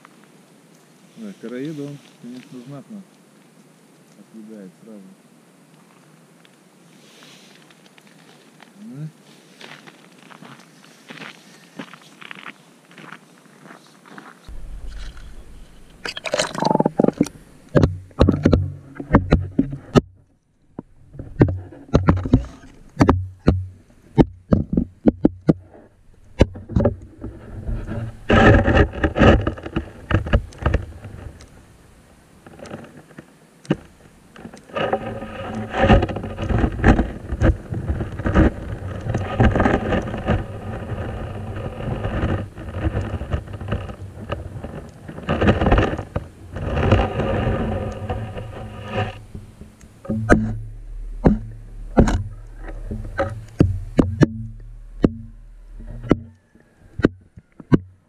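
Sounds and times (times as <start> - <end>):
rushing rumbling water underwater: 14.5 - 20.0, 35.0 - 57.0
knocks and clicks underwater: 14.5 - 31.6, 33.7 - 58.0.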